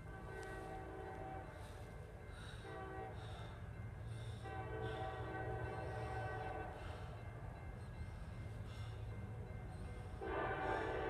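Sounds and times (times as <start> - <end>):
train air horn blast: 0.0 - 1.8, 2.6 - 3.5, 4.4 - 7.0, 10.2 - 11.0
low rumble of train: 0.0 - 11.0.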